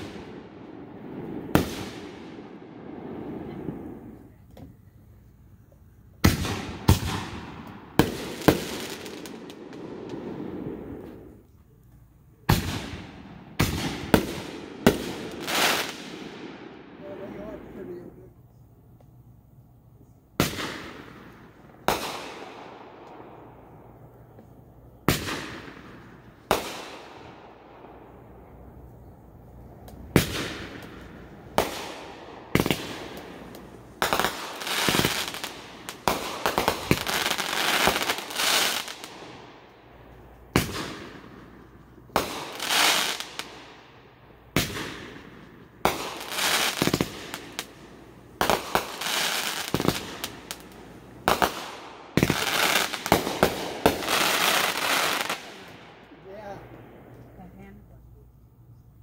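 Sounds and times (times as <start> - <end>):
firework crackling: 0.0 - 11.8, 12.4 - 18.3, 20.4 - 57.8
firework shells bursting: 29.8 - 57.2.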